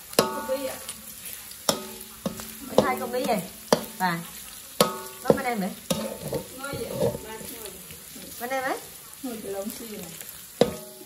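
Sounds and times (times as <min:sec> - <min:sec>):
spatula clanking against wok: 0:00.0 - 0:07.7, 0:10.6 - 0:11.0
oil sizzling: 0:00.0 - 0:11.0
spatula scraping a wok: 0:00.0 - 0:11.0.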